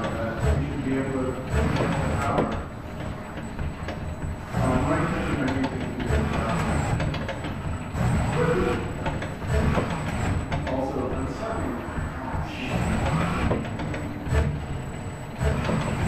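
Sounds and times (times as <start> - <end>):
steady background hum: 0.0 - 16.0
indistinct voices talking: 10.6 - 14.3.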